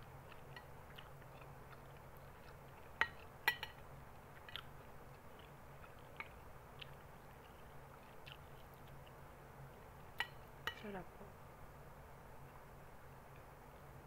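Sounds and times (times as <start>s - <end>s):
chewing: 0.0s - 10.4s
low steady hum: 0.0s - 14.0s.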